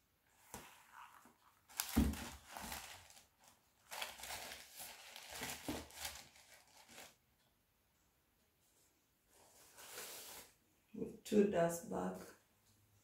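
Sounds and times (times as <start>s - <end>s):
tissue paper rustling: 0.4s - 7.2s, 9.3s - 10.6s.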